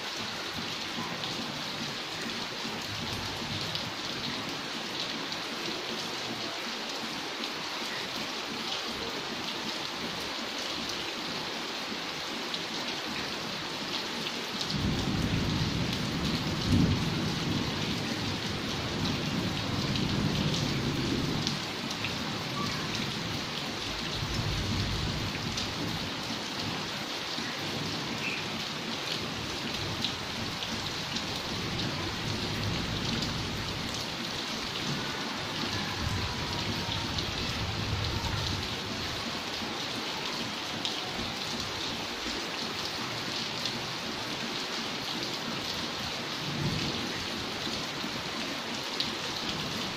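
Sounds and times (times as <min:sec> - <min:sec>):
rain on a flooded yard: 0:00.0 - 0:49.9
rain on glass window panes: 0:29.4 - 0:39.7.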